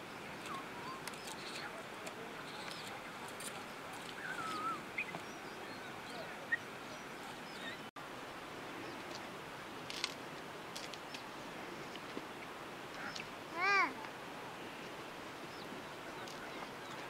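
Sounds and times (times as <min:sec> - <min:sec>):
bird chirps: 0:04.0 - 0:07.9.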